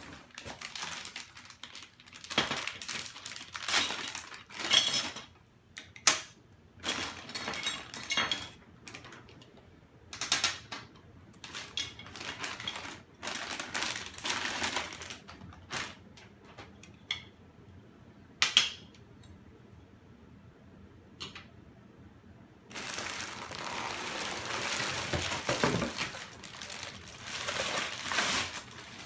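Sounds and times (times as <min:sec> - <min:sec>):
plastic bag crinkling: 0:00.0 - 0:05.3, 0:06.8 - 0:08.0, 0:11.4 - 0:16.1, 0:22.7 - 0:29.0.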